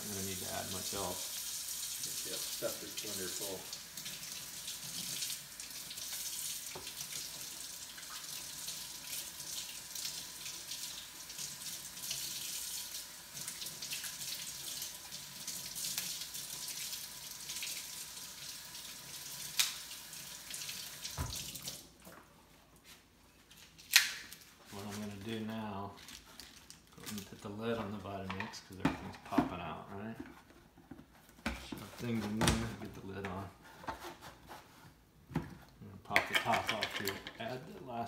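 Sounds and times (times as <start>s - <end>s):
tap water running into sink: 0.0s - 21.8s.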